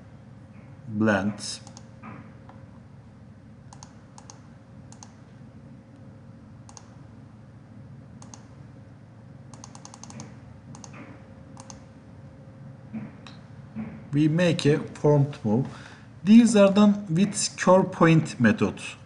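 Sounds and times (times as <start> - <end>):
faint room hum: 0.0 - 19.0
computer mouse clicking: 1.6 - 1.9, 3.7 - 5.2, 6.7 - 7.0, 8.2 - 8.5, 9.5 - 11.9.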